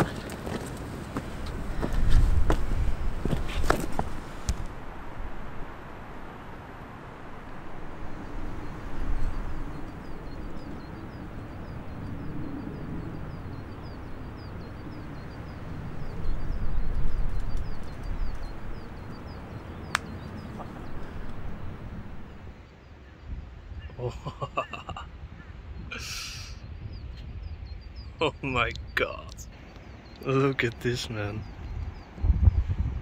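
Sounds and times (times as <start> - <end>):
wind rumbling on microphone: 0.0 - 33.0
bird chirping: 7.5 - 32.9.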